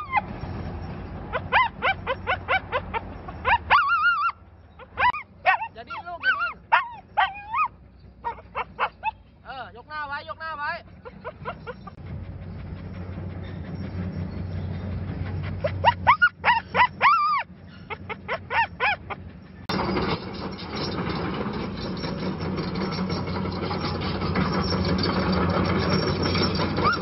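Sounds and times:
dog distress cries: 0:00.0 - 0:09.2, 0:13.8 - 0:19.6, 0:24.6 - 0:27.0
low engine hum: 0:00.0 - 0:27.0
heavy diesel machinery running: 0:04.4 - 0:27.0.

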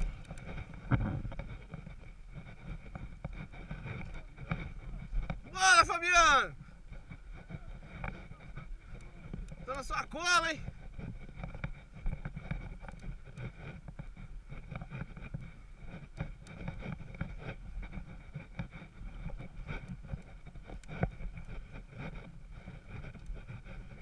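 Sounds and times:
wind on microphone: 0:00.0 - 0:09.8.

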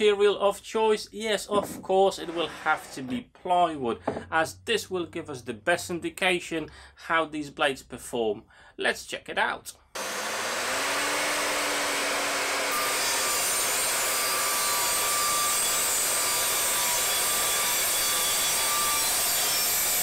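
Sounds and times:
mitre saw cutting plywood: 0:10.0 - 0:20.0.

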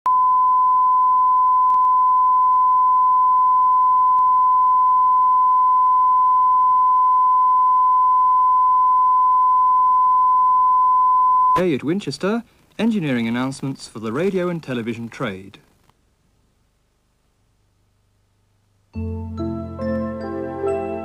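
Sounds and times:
steady pure tone: 0:00.1 - 0:11.6.

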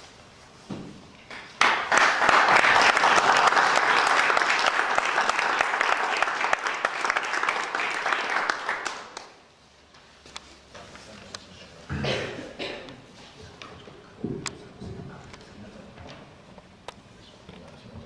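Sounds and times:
audience applauding: 0:01.3 - 0:09.4.

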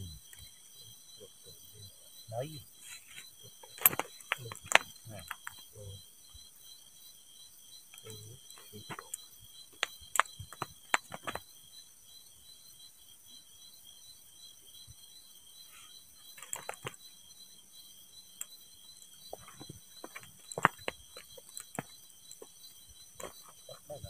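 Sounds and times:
crickets chirping: 0:00.0 - 0:24.0
sharp clicks and knocks: 0:03.6 - 0:05.6, 0:19.3 - 0:22.5.

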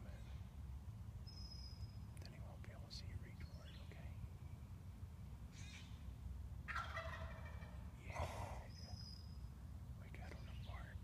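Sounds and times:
turkey gobbling: 0:06.7 - 0:07.8.

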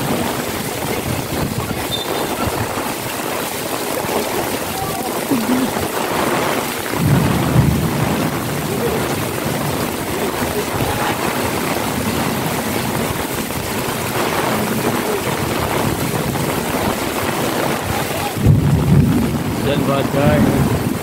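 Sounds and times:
heavy rain hissing: 0:00.0 - 0:21.0.

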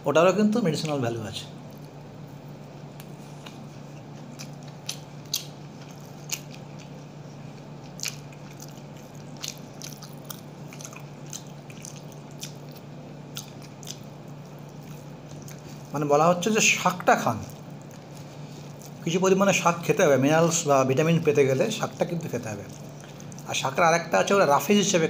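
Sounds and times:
steady low hum: 0:00.0 - 0:25.0
person chewing food: 0:01.6 - 0:16.1, 0:16.7 - 0:19.2, 0:21.4 - 0:24.3.

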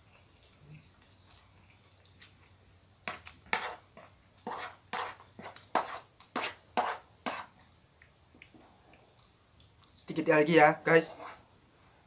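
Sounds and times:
spoon scraping a plate: 0:03.1 - 0:07.6, 0:11.0 - 0:11.5.

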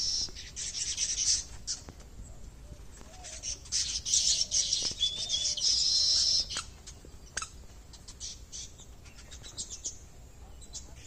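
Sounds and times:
loud buzzy bird call: 0:00.0 - 0:01.8, 0:03.1 - 0:09.6
weaver birds chattering and chirping: 0:00.0 - 0:11.0.

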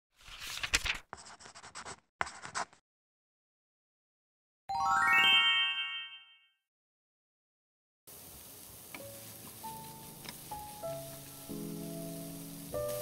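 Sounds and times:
paper rustling and tearing: 0:00.2 - 0:02.8
rising chime: 0:04.7 - 0:06.3.

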